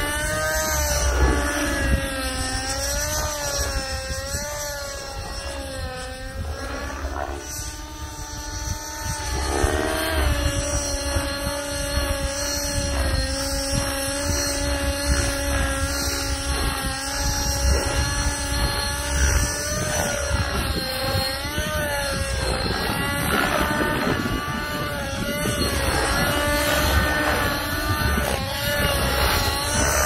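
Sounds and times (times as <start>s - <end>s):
model helicopter engine: 0.0s - 30.0s
rotors whining: 0.0s - 30.0s.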